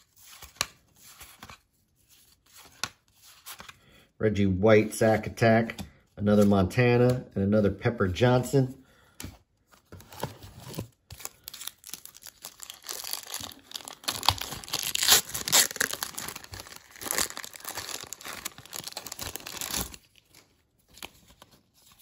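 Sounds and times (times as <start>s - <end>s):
wrapper tearing and crinkling: 11.1s - 20.4s.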